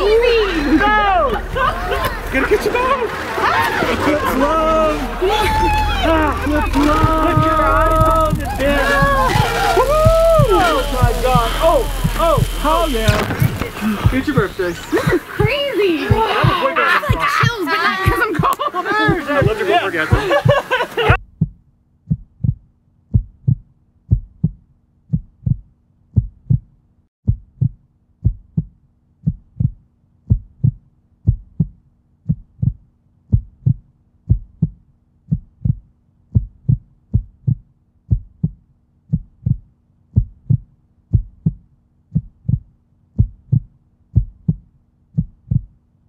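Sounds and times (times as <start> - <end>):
faint steady hum: 0.0 - 16.8
heartbeat thumps: 4.3 - 18.5, 19.1 - 26.7, 27.3 - 45.8.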